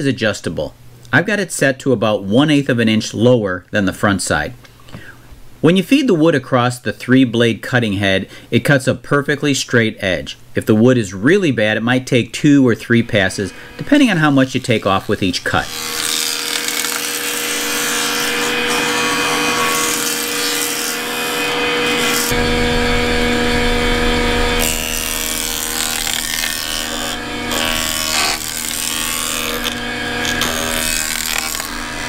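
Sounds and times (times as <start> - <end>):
jointer machine whine: 13.2 - 32.0
wood board being planed: 13.3 - 32.0
low rumble: 22.2 - 27.5.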